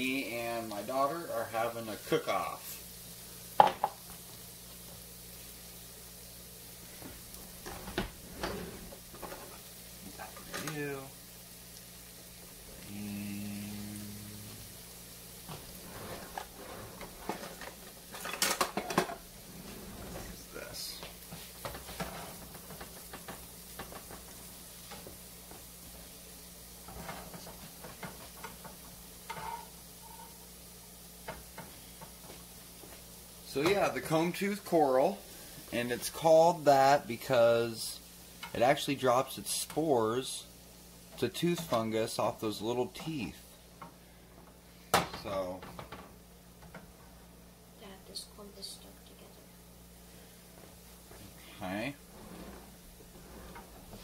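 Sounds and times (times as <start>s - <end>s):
mushrooms sizzling in pan: 0.0s - 54.0s
spatula scraping frying pan: 15.5s - 20.4s, 21.5s - 25.1s, 26.8s - 30.5s, 52.0s - 54.0s.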